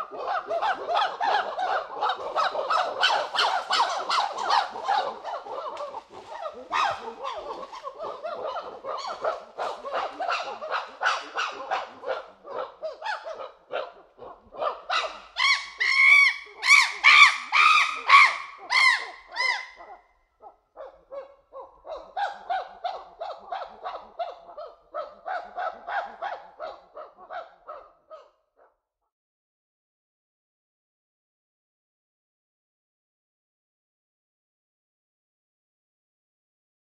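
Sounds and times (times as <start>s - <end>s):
chimpanzee hooting: 0.0s - 20.0s, 20.8s - 28.2s
chimpanzee screaming: 0.0s - 20.0s.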